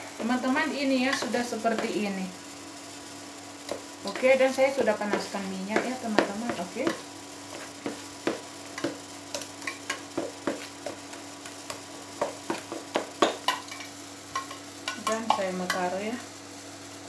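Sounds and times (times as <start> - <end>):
spoon stirring batter: 3.7 - 13.8.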